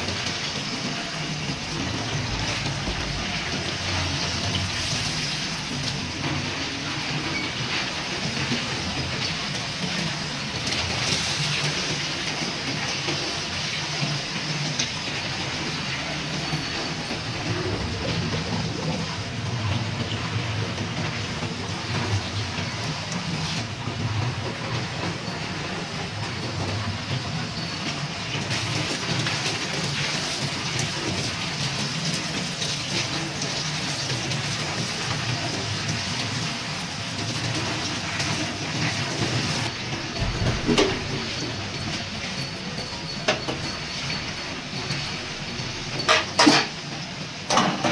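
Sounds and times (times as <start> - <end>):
water running from a hose: 0.0 - 47.9
metal parts dipped in water: 39.2 - 46.9.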